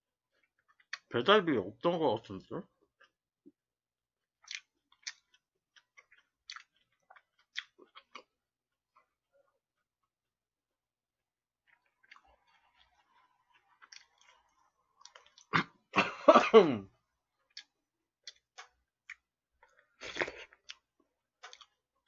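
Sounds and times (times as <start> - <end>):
chewing and mouth sounds: 4.2 - 9.2, 11.6 - 16.0, 17.4 - 22.0.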